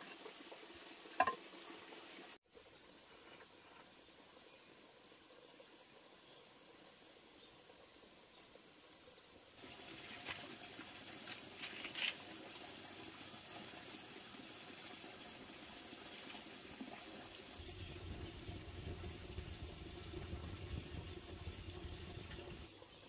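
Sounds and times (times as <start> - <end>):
wood fire crackling and hissing: 9.6 - 22.7.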